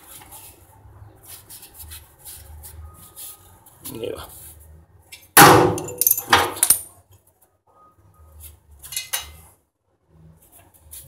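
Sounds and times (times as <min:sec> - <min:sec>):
metal hand tools clattering: 0:05.8 - 0:06.8.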